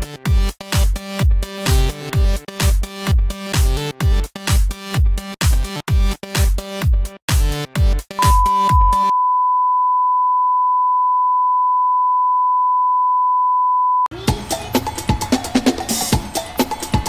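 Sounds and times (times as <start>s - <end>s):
electronic music with heavy kick: 0.0s - 9.1s
steady high test tone beep: 8.2s - 14.1s.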